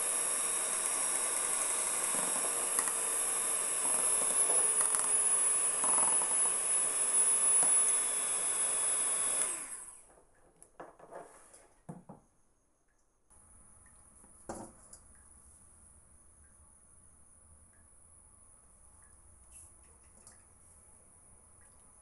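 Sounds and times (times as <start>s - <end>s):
electric hand mixer whining: 0.0s - 10.1s.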